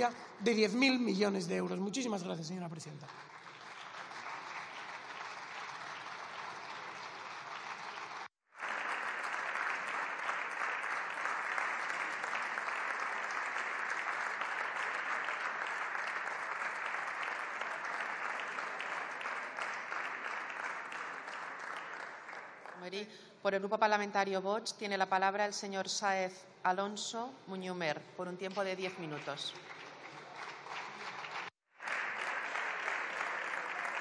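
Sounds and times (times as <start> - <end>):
audience applause: 2.8 - 22.8, 29.2 - 34.0.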